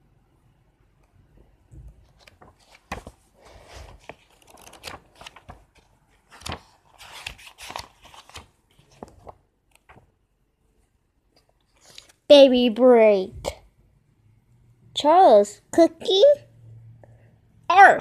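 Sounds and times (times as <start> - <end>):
pages being flipped: 1.8 - 10.1, 11.4 - 12.2.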